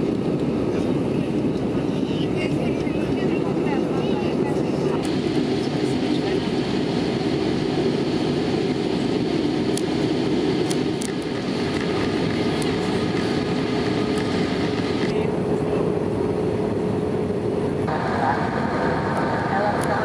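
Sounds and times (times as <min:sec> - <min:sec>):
constant cabin hum: 0:00.0 - 0:20.0
jet engines rumbling: 0:00.0 - 0:20.0
rushing air: 0:17.8 - 0:20.0.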